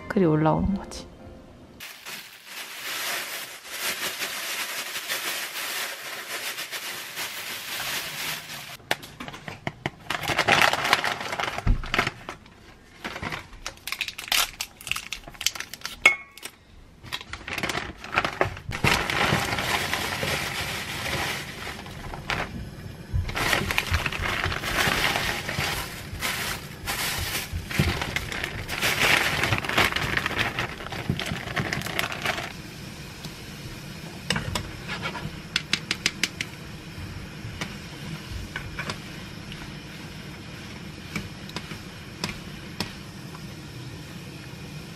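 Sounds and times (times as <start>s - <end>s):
plastic bag crinkling: 1.8s - 8.8s, 10.0s - 22.6s, 23.3s - 32.6s.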